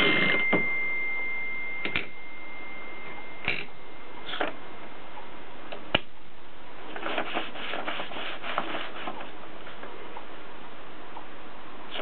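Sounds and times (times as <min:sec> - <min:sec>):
paper rustling in typewriter: 0:06.9 - 0:09.3.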